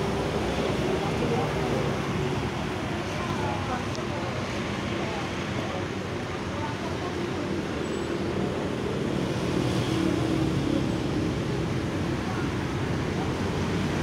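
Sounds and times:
faint voices: 0.0s - 9.0s
street noise: 0.0s - 14.0s.

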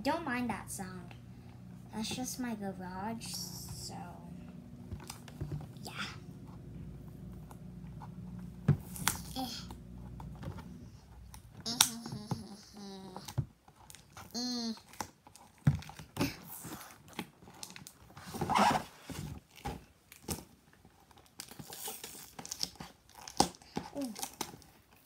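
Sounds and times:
toy packaging crinkling and tearing: 19.5s - 25.0s.

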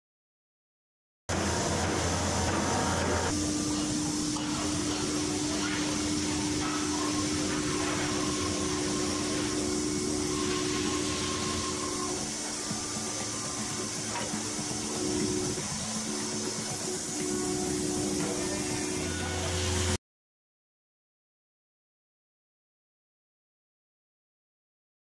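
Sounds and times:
machinery hum and hiss: 1.3s - 20.0s
steady machine whine: 1.3s - 20.0s.

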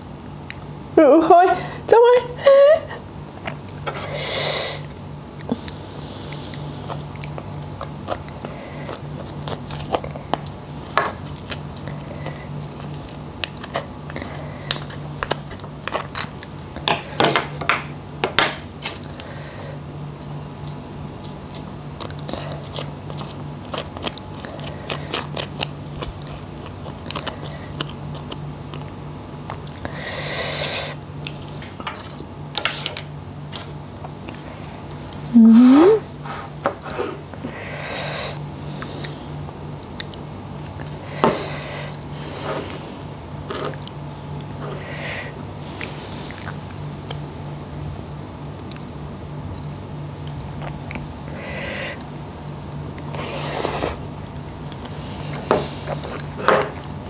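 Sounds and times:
steady low hum: 0.0s - 57.0s
close chewing and crunching: 3.5s - 4.0s, 4.8s - 17.1s, 18.6s - 19.4s, 20.0s - 30.2s, 38.3s - 41.1s, 41.8s - 47.6s, 48.4s - 51.4s, 52.0s - 57.0s.

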